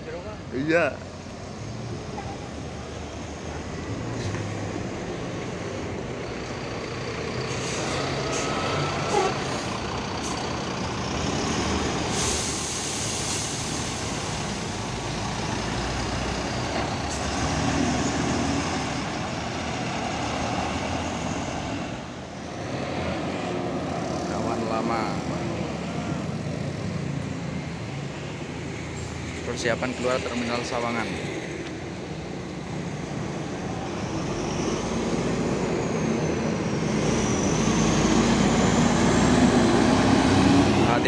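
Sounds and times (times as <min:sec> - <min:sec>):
short air hisses: 0:12.1 - 0:14.1.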